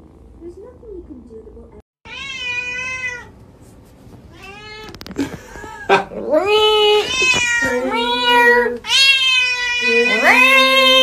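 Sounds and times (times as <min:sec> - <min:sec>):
cat meowing: 0:02.0 - 0:03.3, 0:04.3 - 0:05.0, 0:06.5 - 0:11.0
cat yowling loudly: 0:02.1 - 0:03.3, 0:06.5 - 0:11.0.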